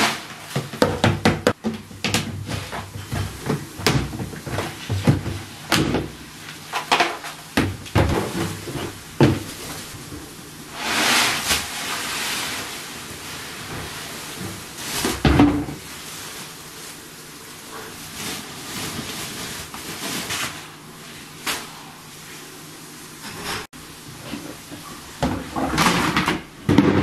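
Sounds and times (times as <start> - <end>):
rattling rustling noise: 0.0 - 17.0
plastic knocks and scraping: 0.5 - 6.2, 6.8 - 10.3.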